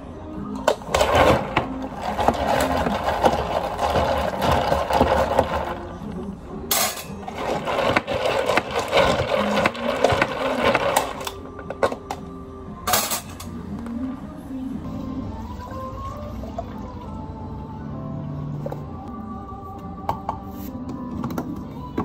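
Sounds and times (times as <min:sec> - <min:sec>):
ice rattling in plastic cups: 0:00.9 - 0:06.0, 0:07.2 - 0:11.4.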